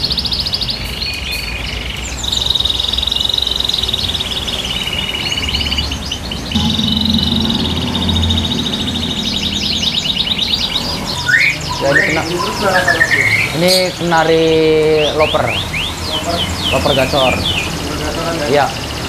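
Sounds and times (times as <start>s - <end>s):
canaries singing trilled phrases: 0.0s - 19.0s.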